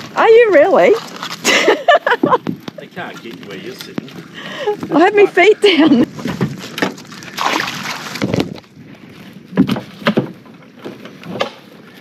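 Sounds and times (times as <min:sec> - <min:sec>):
sharp knocks and clunks: 0:09.5 - 0:11.6.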